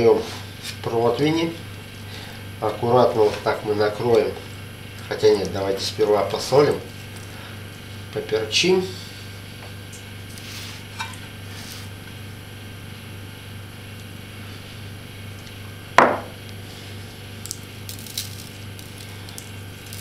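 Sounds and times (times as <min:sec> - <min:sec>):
steady low hum: 0:00.0 - 0:20.0
sharp knock: 0:16.0 - 0:16.3.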